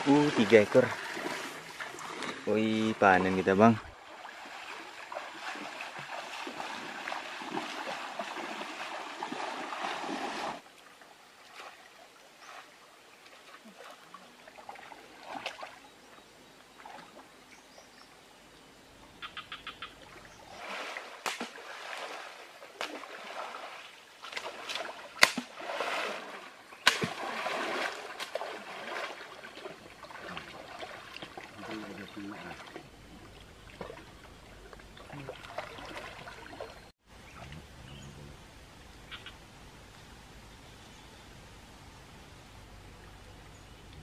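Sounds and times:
river water rushing: 0.0s - 15.8s, 20.5s - 36.8s
splashes: 0.0s - 15.8s, 20.0s - 37.6s
sharp loud slap: 21.2s - 21.6s, 25.2s - 25.5s, 26.8s - 27.2s.

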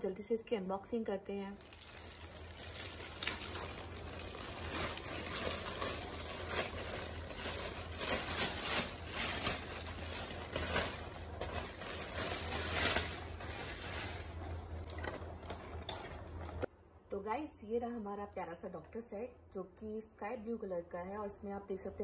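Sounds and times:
plastic bag crinkling: 1.6s - 16.7s.

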